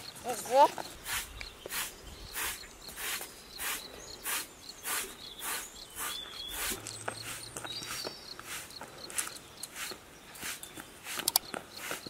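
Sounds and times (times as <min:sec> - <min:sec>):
broom sweeping a rug: 0:00.3 - 0:12.0.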